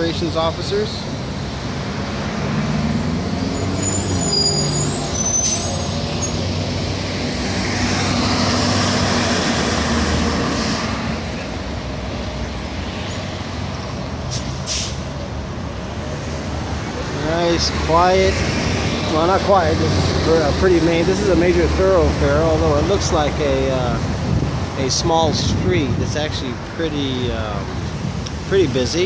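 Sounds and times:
bus diesel engine passing: 0.0s - 23.3s
brief high squeals: 3.4s - 6.5s.

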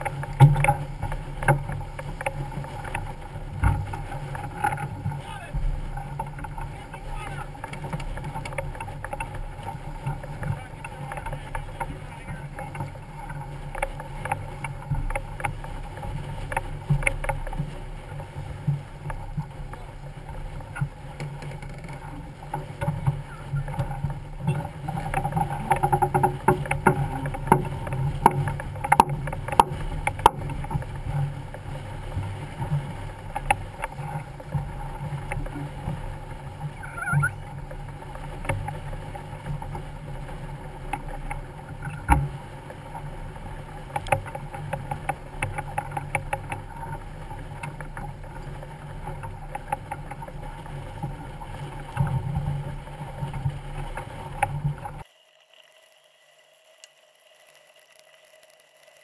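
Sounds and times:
boat clicks and knocks: 0.0s - 31.6s, 43.8s - 55.0s
water slapping along hull: 0.0s - 55.2s.

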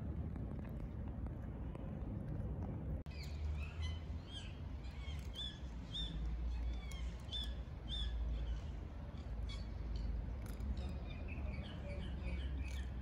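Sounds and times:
low background rumble: 0.0s - 13.0s
small birds chirping: 3.1s - 13.0s.

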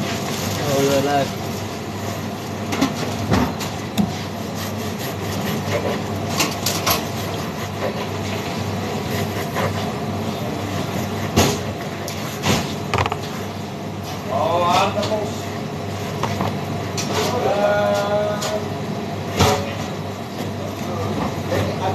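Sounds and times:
knife sawing through bread: 4.1s - 12.4s.

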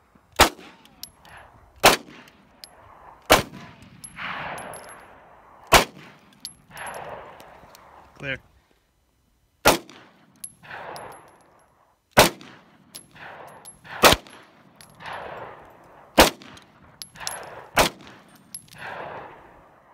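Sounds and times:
pistol shots with echo: 5.7s - 6.2s, 9.6s - 11.2s, 12.2s - 15.6s, 16.2s - 19.4s.

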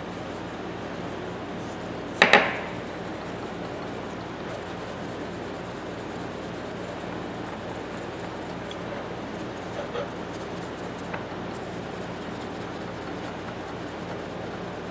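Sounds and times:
steel handle knocking on surface: 2.2s - 2.9s.

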